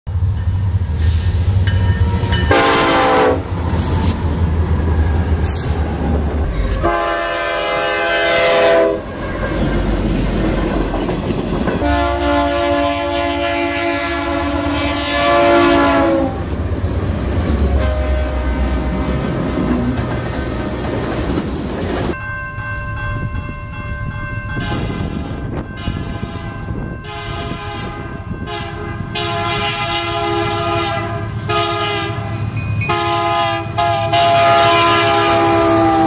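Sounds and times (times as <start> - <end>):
low rumble of locomotives: 0.1 - 36.0
locomotive air horn blasts: 2.0 - 3.9, 6.6 - 9.9, 11.8 - 16.5, 17.6 - 21.0, 24.6 - 36.0.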